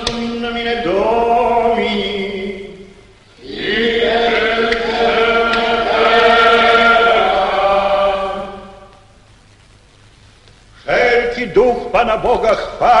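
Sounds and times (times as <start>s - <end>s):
choir chanting in unison: 3.4s - 9.0s.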